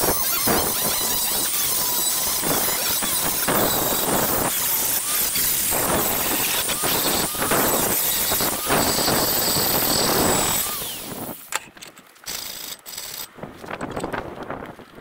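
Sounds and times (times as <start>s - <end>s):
angle grinder grinding steel: 0.0s - 11.5s.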